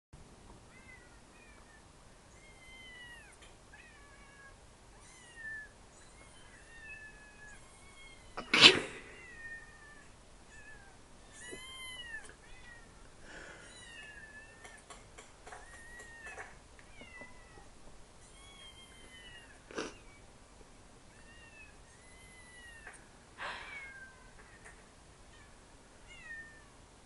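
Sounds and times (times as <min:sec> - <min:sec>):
recorded cats meowing: 0:00.7 - 0:13.0, 0:13.6 - 0:20.2.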